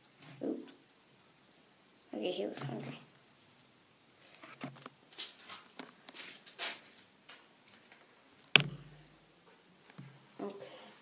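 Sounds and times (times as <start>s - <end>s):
sharp knock: 8.5s - 8.9s.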